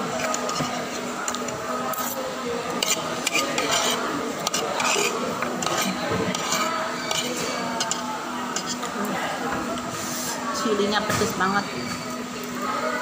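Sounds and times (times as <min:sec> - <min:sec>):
cutlery scraping on a plate: 0:00.1 - 0:08.9.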